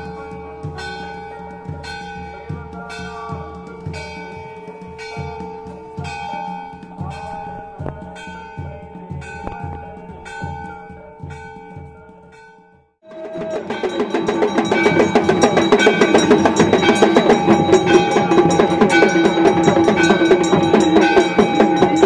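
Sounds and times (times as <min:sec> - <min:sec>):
temple bell ringing: 0:00.0 - 0:22.0.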